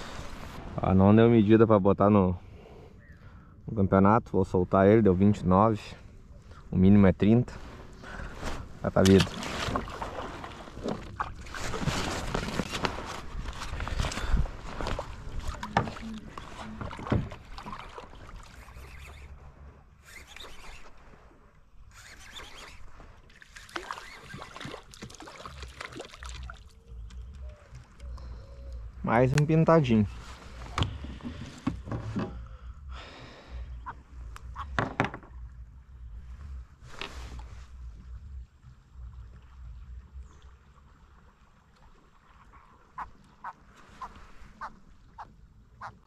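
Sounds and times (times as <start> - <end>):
low rumbling microphone noise: 0.0 - 9.5
faint water sounds: 0.0 - 46.0
water splashing: 8.2 - 19.4, 22.0 - 28.4
short knocks and rustles: 30.6 - 32.4.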